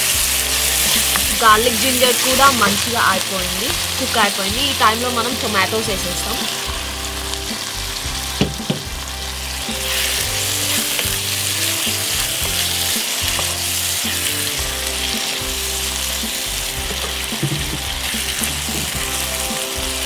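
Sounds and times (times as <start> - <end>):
low background music: 0.0 - 20.0
vegetables sizzling in hot oil: 0.0 - 20.0
spatula stirring in wok: 5.9 - 20.0.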